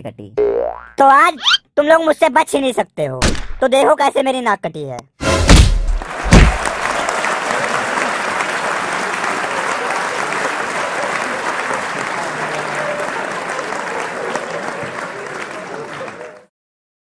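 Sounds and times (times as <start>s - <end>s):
crowd applause: 5.9s - 16.5s.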